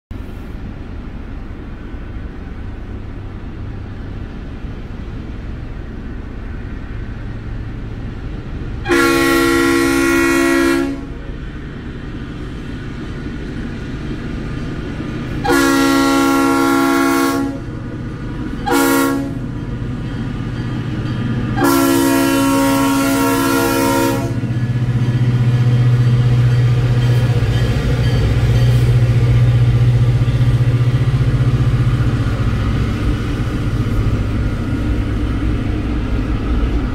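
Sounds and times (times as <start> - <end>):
locomotive air horn: 8.8 - 11.2, 15.4 - 17.7, 18.6 - 19.5, 21.6 - 24.5
steady low rumble: 10.7 - 36.9.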